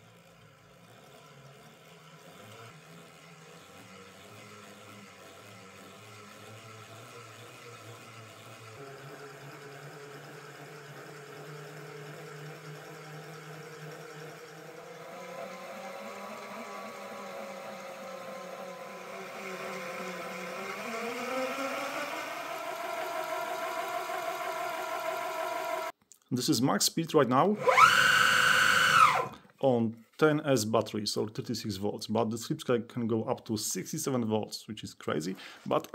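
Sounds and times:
electric motor whine: 0.0s - 25.9s, 27.6s - 29.4s.

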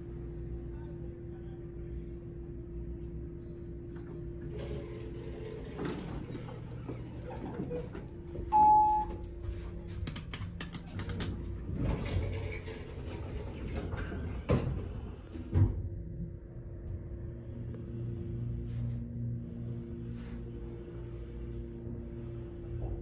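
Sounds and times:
elevator hum: 0.0s - 23.0s
elevator doors clicking and knocking: 4.0s - 9.3s, 10.0s - 16.0s
elevator beep: 8.5s - 9.3s.

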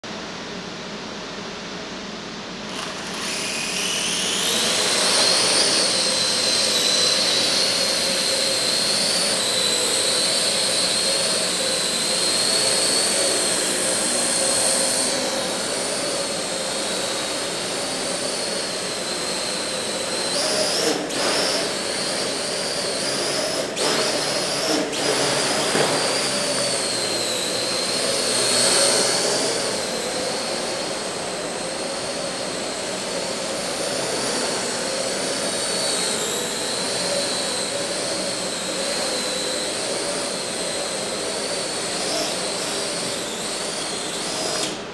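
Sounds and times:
drone propellers whining: 2.7s - 44.9s.

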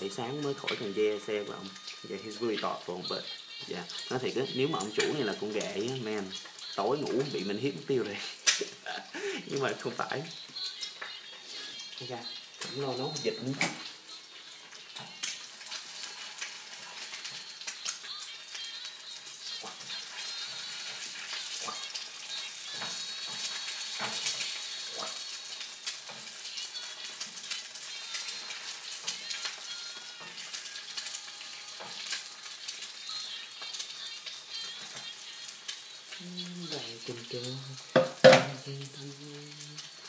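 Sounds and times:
eggs sizzling in a pan: 0.0s - 40.0s
person singing a melody: 0.0s - 40.0s.

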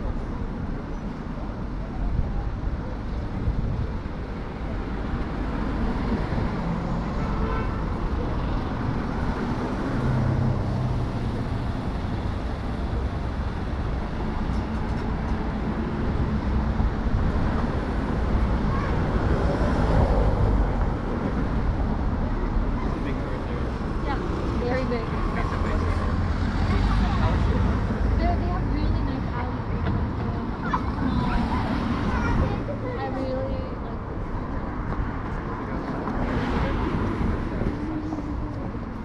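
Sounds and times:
cars passing: 0.0s - 39.0s.

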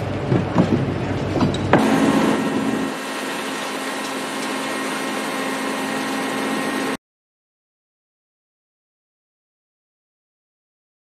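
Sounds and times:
crane engine droning: 0.0s - 7.0s.

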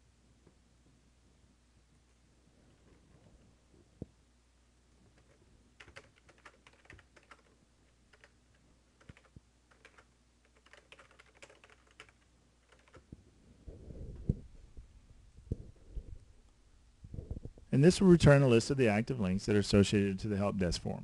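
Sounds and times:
faint keyboard typing: 5.0s - 13.2s.

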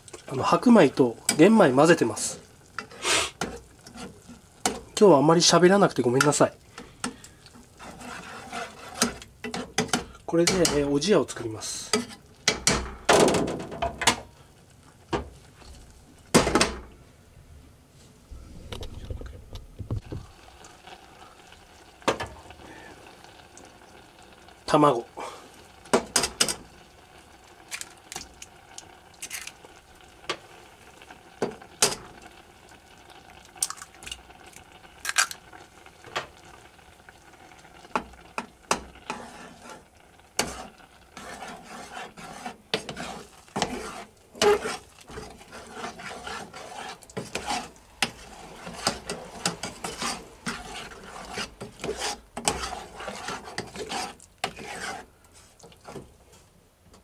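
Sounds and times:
spoon stirring thick porridge: 7.0s - 10.9s, 38.0s - 56.4s.

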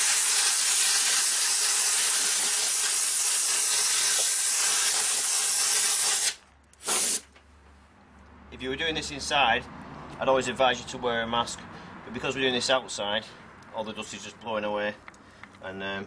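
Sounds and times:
compressed air hissing: 0.0s - 7.3s.

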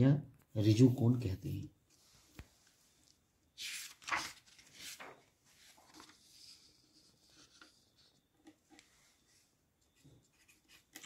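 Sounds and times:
paper rustling and scraping: 3.6s - 11.0s.

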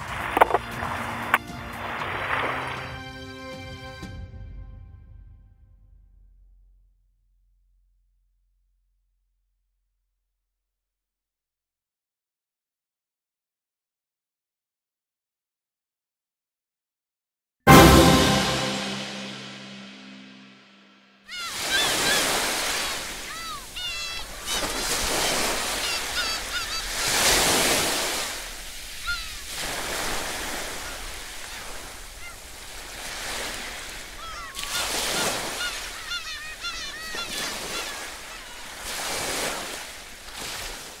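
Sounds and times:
sea waves washing over rocks: 0.0s - 3.0s, 21.4s - 41.0s
birds crying: 21.3s - 40.1s.

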